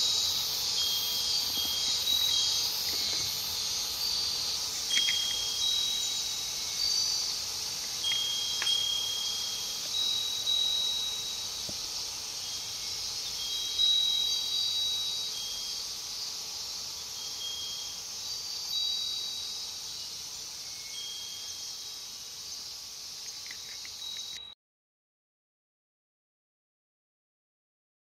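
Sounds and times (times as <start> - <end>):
wind bell ringing: 0.0 - 16.3, 17.0 - 22.1
insects hissing: 0.0 - 24.6.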